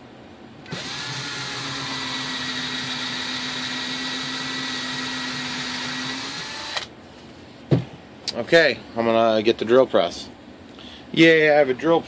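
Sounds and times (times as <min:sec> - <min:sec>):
cordless drill boring into wood: 0:00.7 - 0:06.9.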